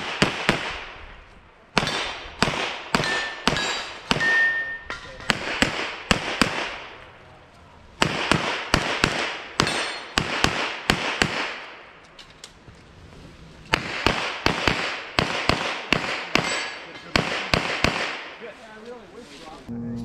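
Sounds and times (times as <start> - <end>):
rapid pistol fire: 0.0 - 1.0, 1.8 - 4.3, 5.3 - 7.0, 8.0 - 11.8, 13.7 - 18.4.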